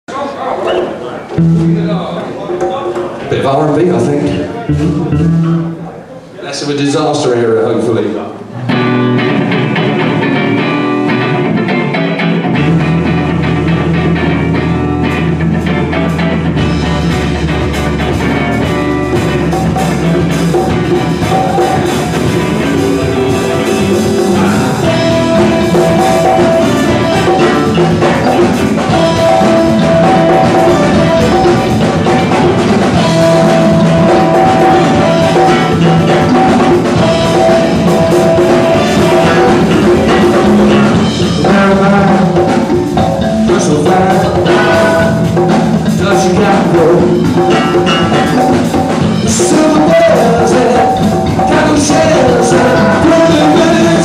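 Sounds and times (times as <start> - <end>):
live band playing: 0.1 - 54.0
bass guitar: 0.7 - 6.2, 8.4 - 54.0
drums and cymbals: 8.7 - 54.0
saxophone melody: 18.4 - 42.3.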